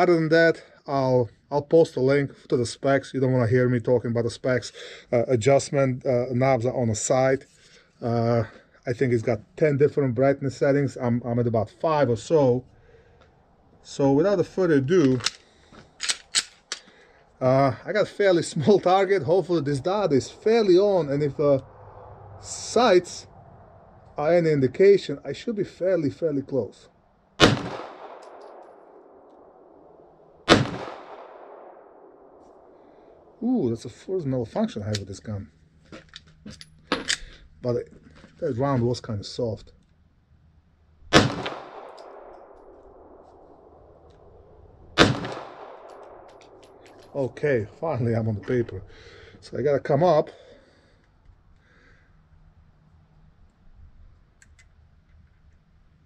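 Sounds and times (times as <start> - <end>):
pistol shot with echo: 27.4 - 32.8, 41.1 - 43.7, 45.0 - 47.0.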